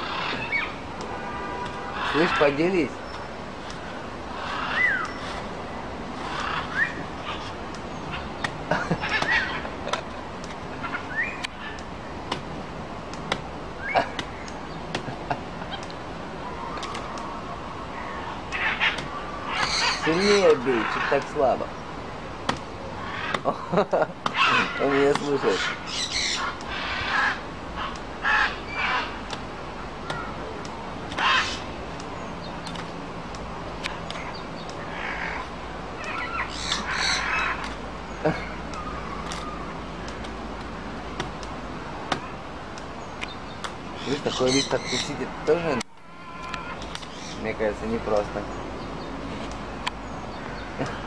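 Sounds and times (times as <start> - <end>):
rough animal calls: 0.0 - 0.8, 1.7 - 3.0, 4.3 - 10.1, 16.5 - 21.7, 22.5 - 31.8, 33.8 - 41.4, 43.3 - 48.4
outdoor background noise: 0.0 - 51.0
fruit knocking on wooden branch: 12.3 - 12.5, 13.1 - 13.5, 14.1 - 15.2, 22.4 - 22.7, 41.1 - 41.5, 42.1 - 42.3
monkey chirps: 44.0 - 45.1.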